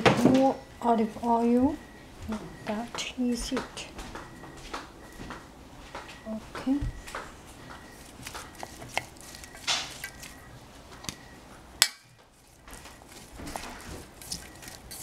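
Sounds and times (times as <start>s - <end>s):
utensils scraping a metal bowl: 14.2s - 15.0s.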